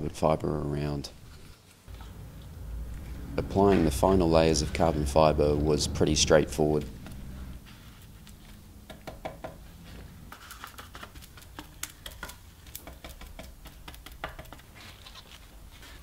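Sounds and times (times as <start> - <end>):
brush dabbing resin into cloth: 6.7 - 16.0.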